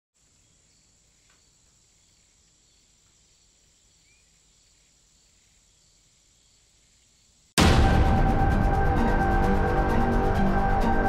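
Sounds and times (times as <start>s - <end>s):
faint steady hiss: 0.2s - 7.6s.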